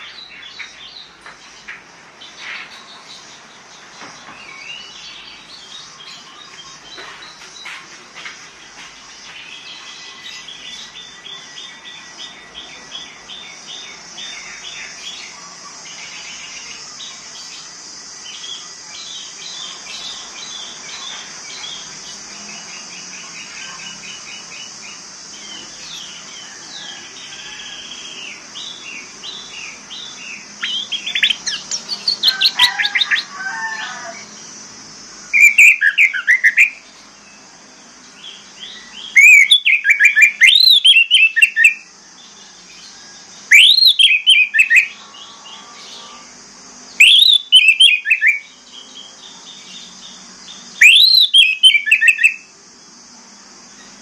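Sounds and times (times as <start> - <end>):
thrush singing: 18.4 - 36.9.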